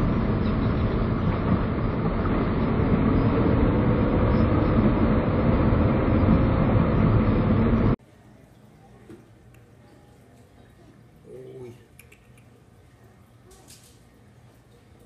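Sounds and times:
car engine hum: 0.0 - 8.0.

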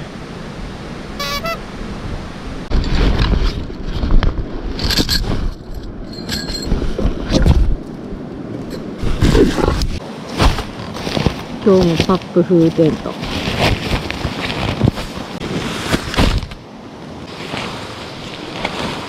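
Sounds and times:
nylon fabric rustling: 9.0 - 16.6.

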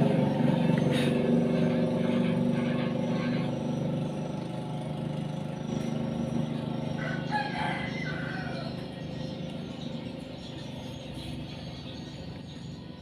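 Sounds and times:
rooster crowing: 6.9 - 9.0.

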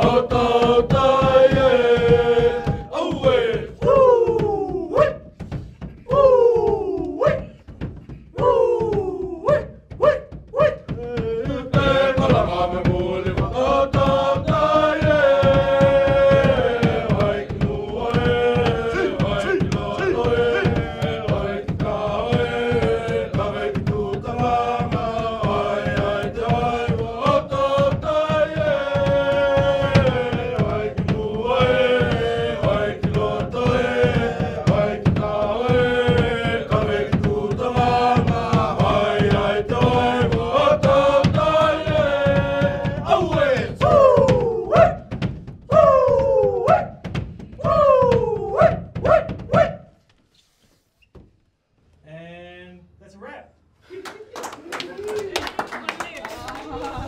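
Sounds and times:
group chanting in unison: 0.0 - 5.2, 10.9 - 45.1
rhythmic beat: 0.0 - 49.8.

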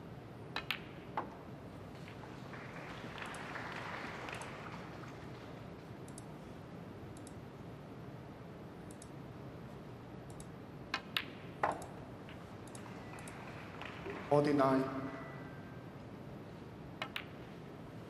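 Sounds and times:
snooker balls clicking: 0.5 - 2.3, 10.9 - 14.2, 17.0 - 17.6
cue tip clicking ball: 0.6 - 1.4, 17.0 - 17.5.

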